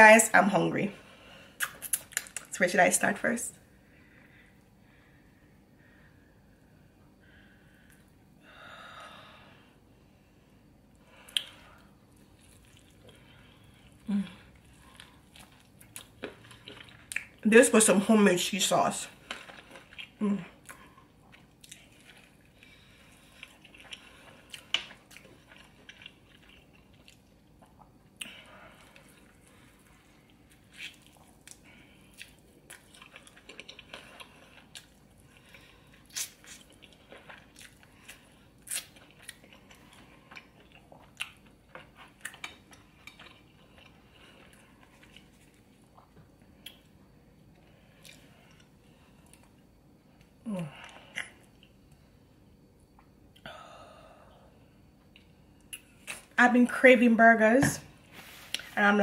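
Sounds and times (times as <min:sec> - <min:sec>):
sharp mouth clicks: 0:01.6 - 0:02.5
person chewing a burger: 0:11.2 - 0:17.4, 0:19.2 - 0:53.5.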